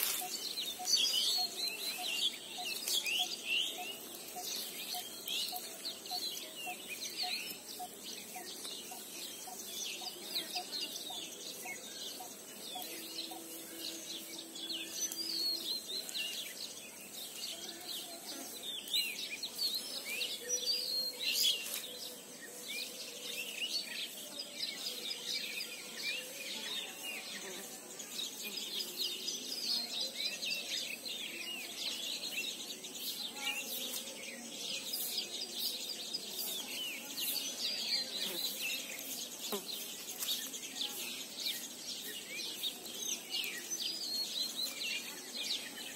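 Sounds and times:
birds chirping and calling: 0.0s - 45.9s.

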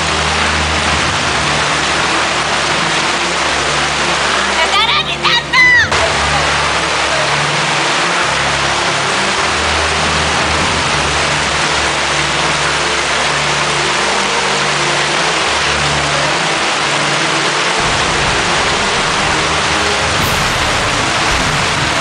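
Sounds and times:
hail and rain pelting down: 0.0s - 22.0s
low hum: 17.6s - 22.0s.

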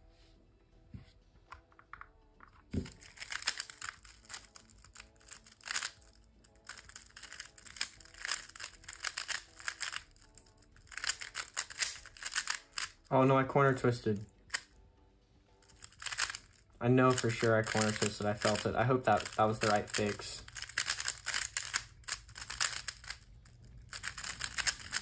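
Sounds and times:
puzzle cube clicking: 2.7s - 13.1s, 14.5s - 14.7s, 15.6s - 25.0s.

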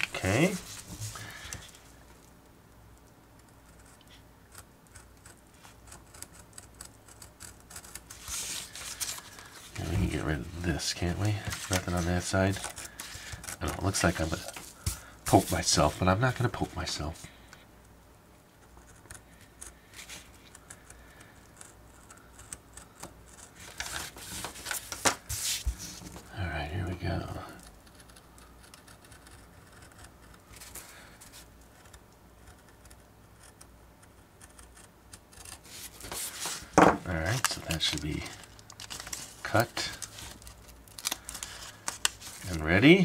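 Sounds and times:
knife blade cutting paper: 11.0s - 15.7s.

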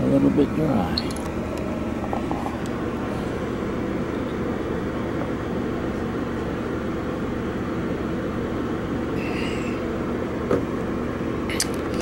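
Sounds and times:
train low hum and rumble: 0.0s - 12.0s.

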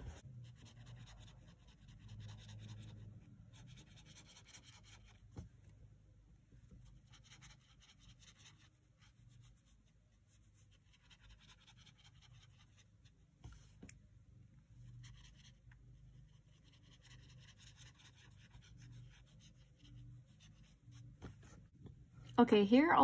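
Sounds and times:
brush pen strokes on paper: 0.0s - 5.2s, 14.8s - 21.8s.

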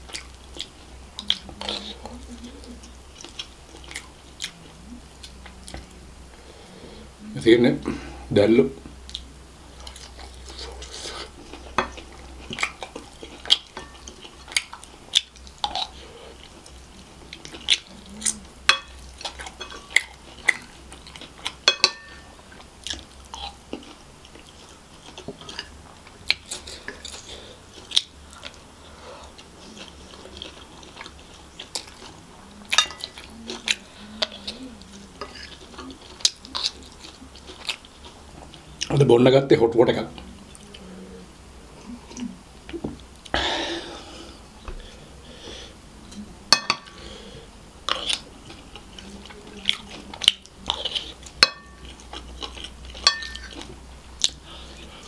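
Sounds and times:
wet chewing and mouth clicks: 0.0s - 5.9s, 9.0s - 21.7s, 22.4s - 39.0s, 47.8s - 55.0s
wooden spoon tapping a plate: 46.5s - 46.8s.

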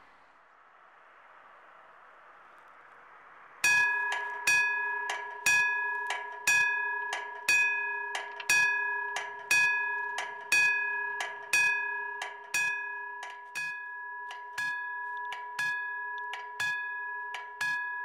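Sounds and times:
level crossing bell clanging: 3.6s - 18.0s.

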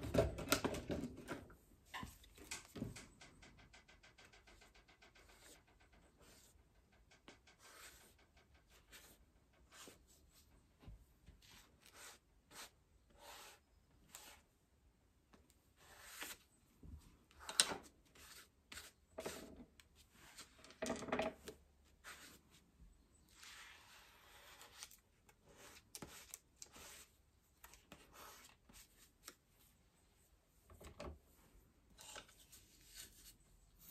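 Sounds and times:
paintbrush scrubbing on paper: 11.4s - 14.4s.

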